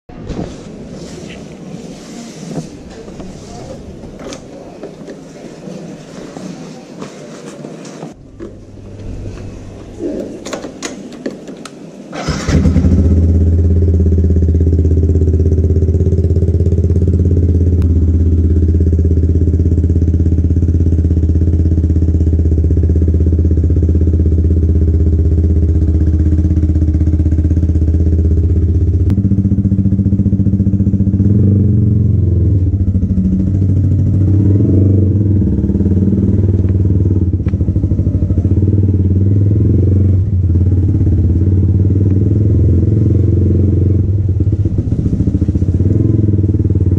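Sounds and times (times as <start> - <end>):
motorcycle pulling away: 12.1 - 46.9
motorcycle engine idling: 12.2 - 46.9.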